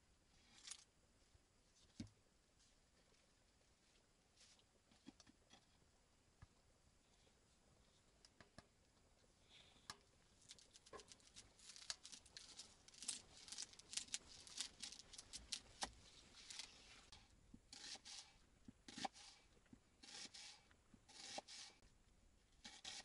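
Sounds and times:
onion skin crackling and tearing: 0:10.4 - 0:16.8.

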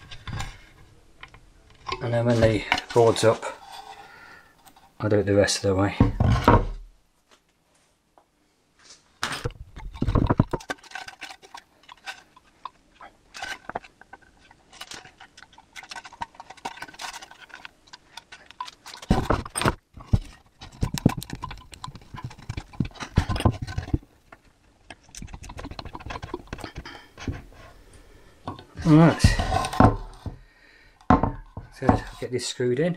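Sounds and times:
wooden board knocking and scraping: 0:05.9 - 0:06.9, 0:09.2 - 0:12.2, 0:18.3 - 0:24.5, 0:25.1 - 0:27.7, 0:28.5 - 0:30.4, 0:31.1 - 0:32.2.

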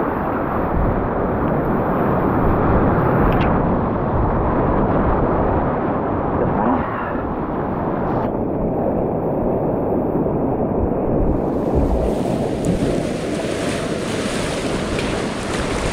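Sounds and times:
whitewater rapids rushing: 0:11.6 - 0:15.9.

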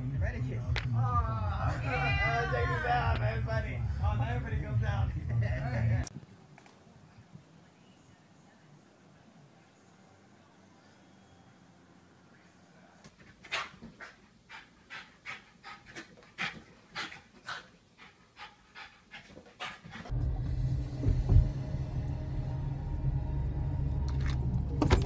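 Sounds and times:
dog panting: 0:13.2 - 0:20.1.

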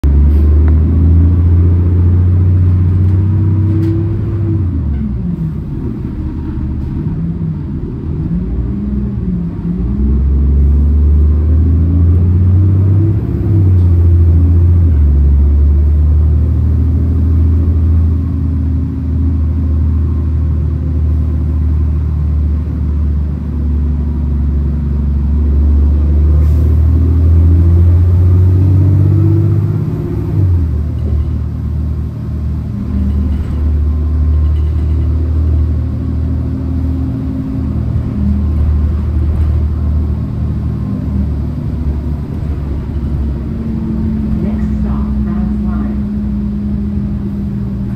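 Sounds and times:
bus engine droning: 0:00.0 - 0:47.9.

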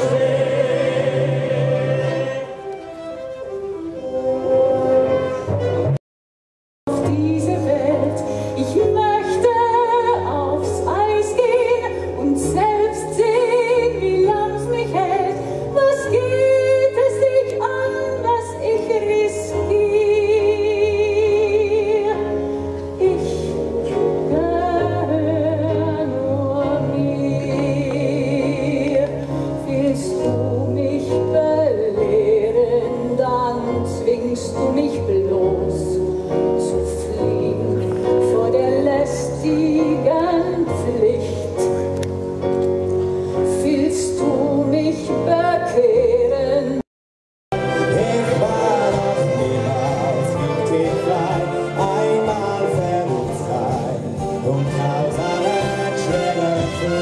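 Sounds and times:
orchestra playing: 0:00.0 - 0:06.0, 0:47.5 - 0:57.0.

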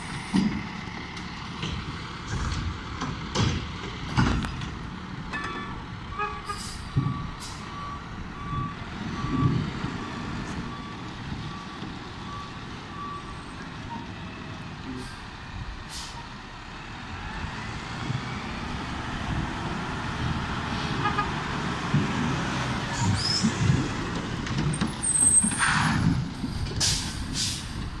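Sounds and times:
truck engine: 0:00.0 - 0:28.0
truck reversing beeper: 0:05.4 - 0:15.3
air brakes hissing: 0:06.4 - 0:07.7, 0:15.9 - 0:16.3, 0:25.1 - 0:27.9.

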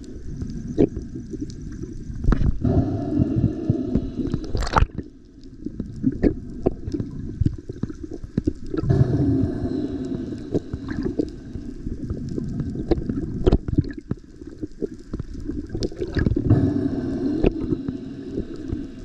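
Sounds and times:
faint steady tones: 0:00.0 - 0:15.4, 0:16.4 - 0:19.0
underwater rumble of moving water: 0:00.0 - 0:19.0
underwater clicks and pops: 0:03.9 - 0:05.1, 0:12.1 - 0:18.9.

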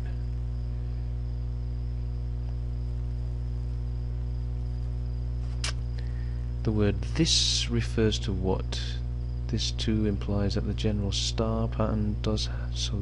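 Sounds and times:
electrical hum: 0:00.0 - 0:13.0
faint high whine: 0:00.0 - 0:13.0
short click: 0:05.5 - 0:05.8.

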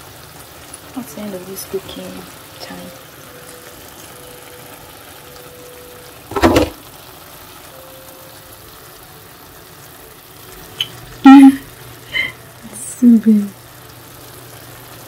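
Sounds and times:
low kitchen hum: 0:00.0 - 0:15.0
loud clunk: 0:06.3 - 0:06.8.

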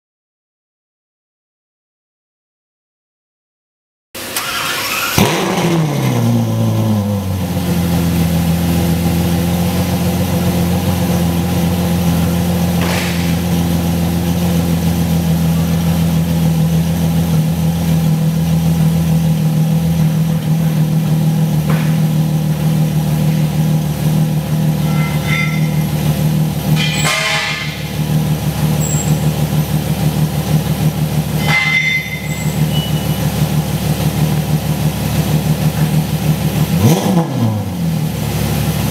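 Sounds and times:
car engine revving and idling: 0:04.2 - 0:38.9.

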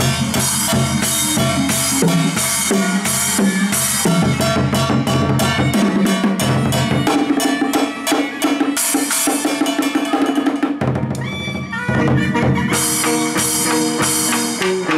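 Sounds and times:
fast drumming on barrel drums: 0:00.0 - 0:14.6
pitched instruments playing: 0:11.9 - 0:14.9.

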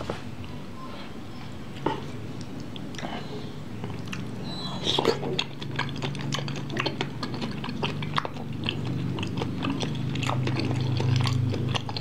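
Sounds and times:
low steady hum: 0:00.0 - 0:12.0
wet chewing with mouth clicks: 0:01.8 - 0:12.0.

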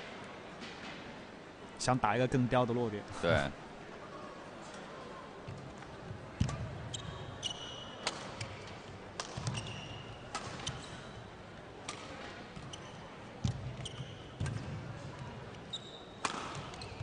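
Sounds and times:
court shoes squeaking: 0:05.5 - 0:17.0
rackets striking shuttlecock: 0:08.0 - 0:10.9, 0:16.2 - 0:17.0.

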